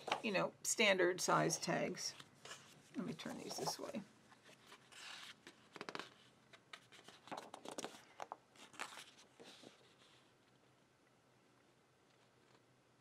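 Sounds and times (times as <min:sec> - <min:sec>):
paper rustling and crinkling: 0:02.1 - 0:10.6.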